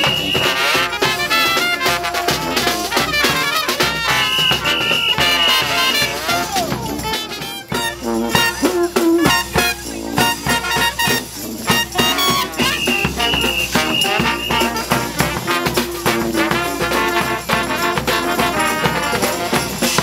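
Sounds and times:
high horn note blasts: 0.0s - 6.5s, 12.3s - 15.0s
jazz brass band playing: 0.0s - 20.0s.

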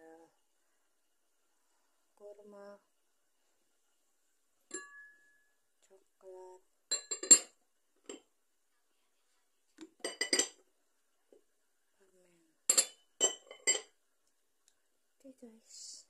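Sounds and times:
glass jars and lids clinking: 4.7s - 5.4s, 6.9s - 8.2s, 9.8s - 10.6s, 12.7s - 13.9s.

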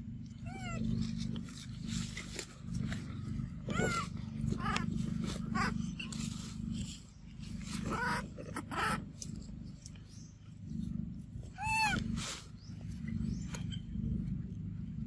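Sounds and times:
steady low hum: 0.0s - 15.0s
rustling: 0.8s - 8.4s
macaques squealing: 3.6s - 6.2s, 7.7s - 9.2s, 11.5s - 12.2s.

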